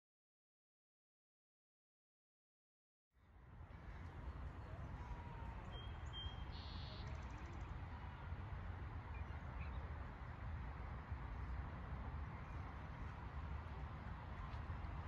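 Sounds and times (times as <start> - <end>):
faint bird chirps: 5.0 - 7.8.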